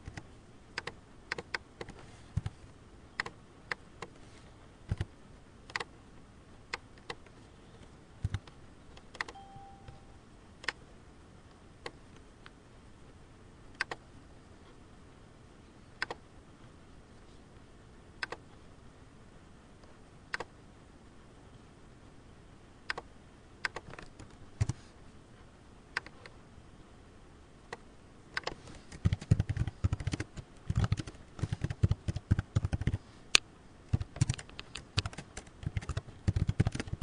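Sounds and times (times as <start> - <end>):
keyboard keystrokes: 8.2 - 10.0, 13.8 - 14.0, 28.4 - 33.0, 33.9 - 37.0
short faint tone: 9.3 - 10.3
mouse clicks: 18.2 - 18.4, 26.0 - 26.2.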